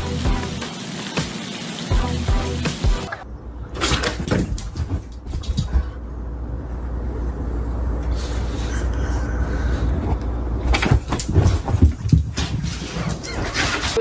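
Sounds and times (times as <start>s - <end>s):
steady low rumble: 4.8s - 12.3s.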